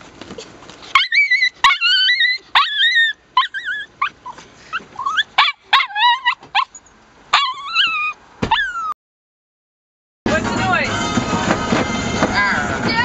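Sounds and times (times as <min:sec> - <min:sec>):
small dog howling and yipping: 0:00.9 - 0:09.0.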